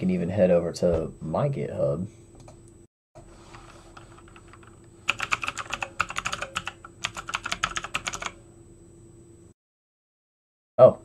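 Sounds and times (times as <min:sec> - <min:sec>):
computer keyboard typing: 0:03.9 - 0:08.4.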